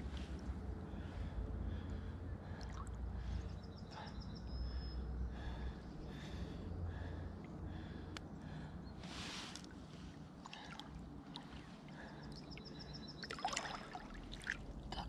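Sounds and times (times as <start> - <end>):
water sloshing and lapping: 2.4 - 3.7, 9.0 - 15.0.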